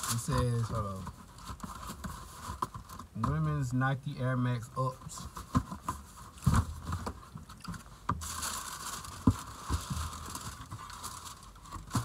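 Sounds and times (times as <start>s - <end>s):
paper rustling and crinkling: 0.0s - 3.3s, 5.2s - 12.0s
cardboard box knocks and clicks: 5.5s - 7.2s.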